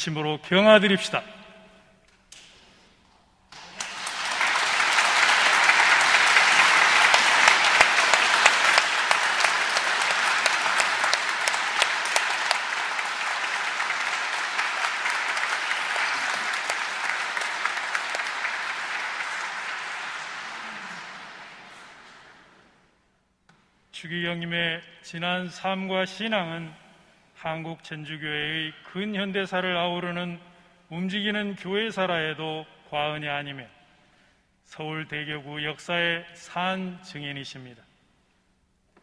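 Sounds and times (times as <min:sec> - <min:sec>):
congregation applauding: 0:03.5 - 0:23.0.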